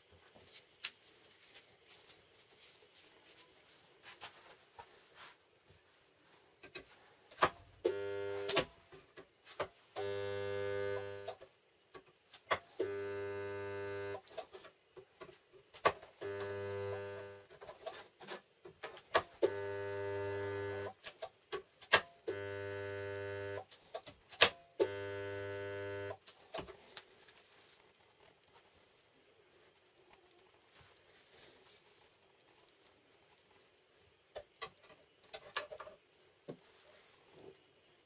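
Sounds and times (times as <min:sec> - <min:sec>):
spot welder transformer buzzing: 0:07.8 - 0:08.7, 0:10.0 - 0:11.4, 0:12.8 - 0:14.2, 0:16.2 - 0:17.5, 0:19.4 - 0:21.0, 0:22.3 - 0:23.7, 0:24.8 - 0:26.2.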